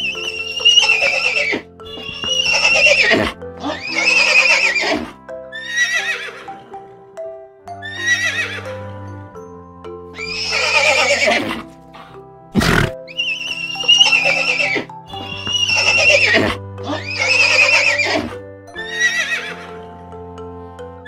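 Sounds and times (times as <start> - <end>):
horse whinnying: 0.0 - 6.6, 7.8 - 8.7, 10.2 - 11.7, 12.5 - 19.8
background music with held notes: 0.0 - 21.0.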